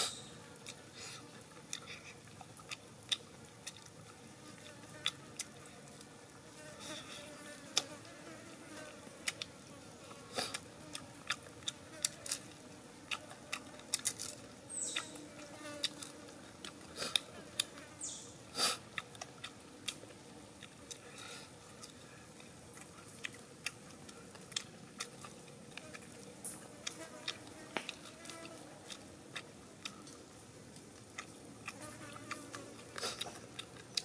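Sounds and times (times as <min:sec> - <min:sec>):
lip smacking and chewing: 0:00.0 - 0:04.2, 0:18.6 - 0:34.0.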